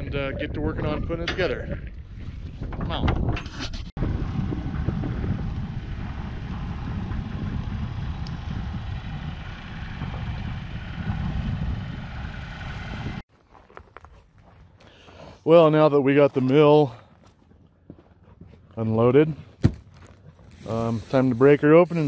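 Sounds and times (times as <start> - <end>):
tractor engine rumbling: 0.0 - 13.2.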